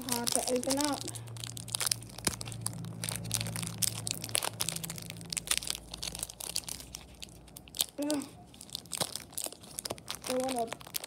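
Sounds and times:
foil wrapper crinkling: 0.0 - 11.0.

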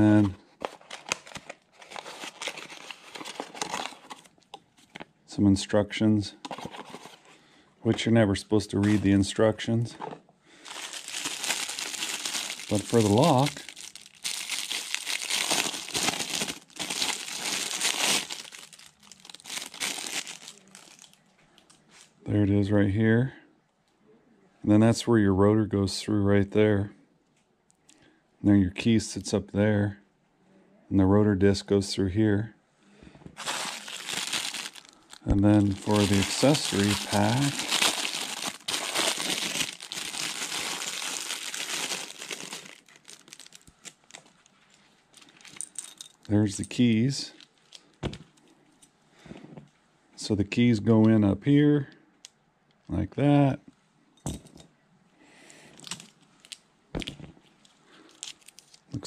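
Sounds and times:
plastic wrap crinkling: 0.0 - 5.1, 10.5 - 22.1, 33.4 - 46.3, 55.8 - 59.0.

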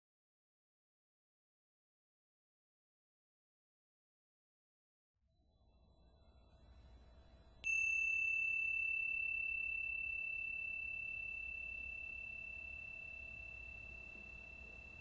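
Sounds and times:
tingsha cymbals ringing: 7.6 - 15.0.

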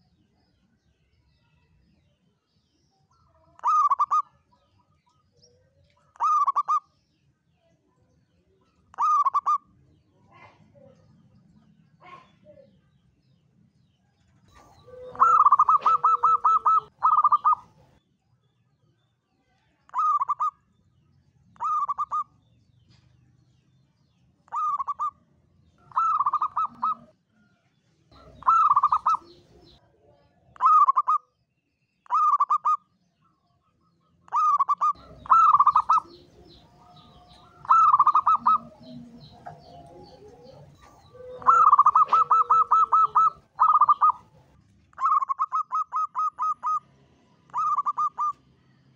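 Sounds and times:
dove cooing: 3.6 - 4.4, 6.2 - 6.8, 8.9 - 9.6, 14.5 - 17.9, 21.6 - 22.2, 24.5 - 25.1, 25.8 - 27.1, 28.2 - 29.8, 34.3 - 46.8, 47.5 - 48.4.

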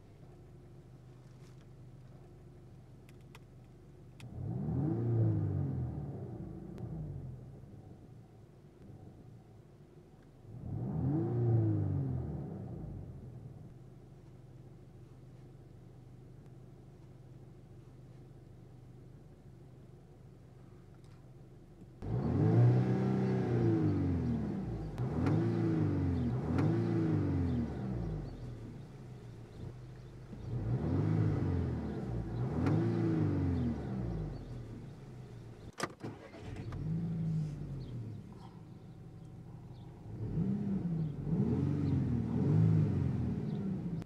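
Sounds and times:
car engine revving: 4.2 - 7.6, 10.5 - 13.5, 22.0 - 44.0.

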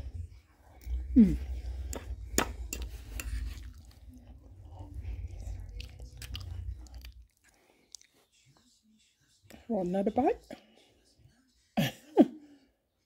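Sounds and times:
low rumble: 0.0 - 7.2.

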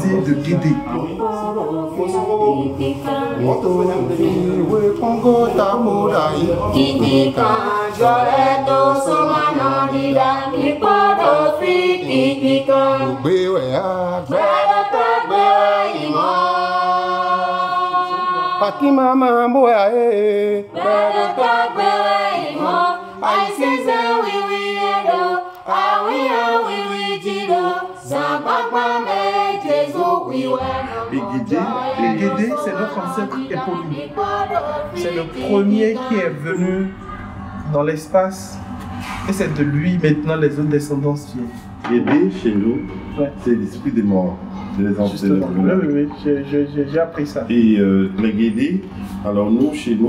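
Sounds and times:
group singing unaccompanied: 0.0 - 50.0.

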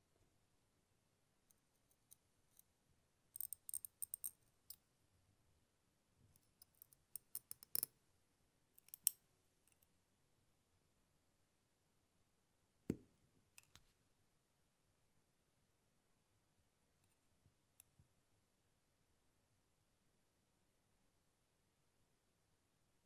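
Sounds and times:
metal tweezers clicking: 3.4 - 4.3, 6.4 - 7.9, 8.8 - 9.2.

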